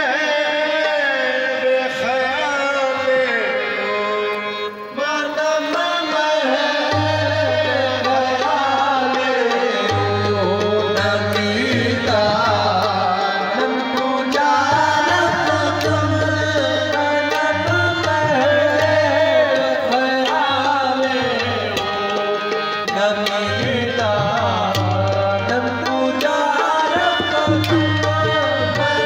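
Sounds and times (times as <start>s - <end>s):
tabla drumming: 0.0s - 29.0s.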